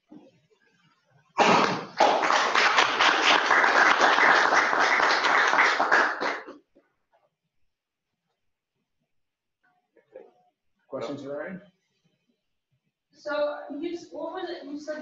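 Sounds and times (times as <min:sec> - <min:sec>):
audience applauding: 0:01.4 - 0:06.6.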